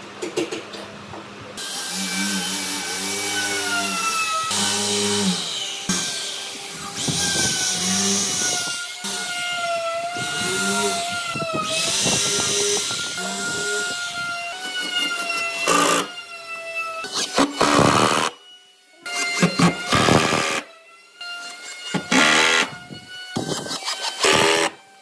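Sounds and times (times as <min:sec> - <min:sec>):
power tool motor whine: 0:01.6 - 0:25.0.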